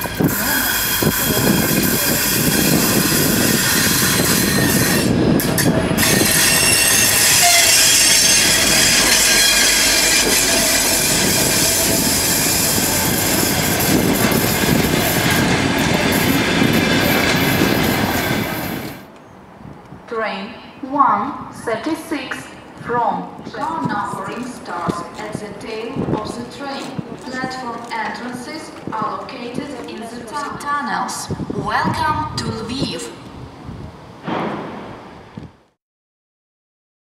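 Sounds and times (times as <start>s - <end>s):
wheels and brakes squealing: 0.0s - 19.0s
train wheels rumbling and clattering: 0.0s - 20.0s.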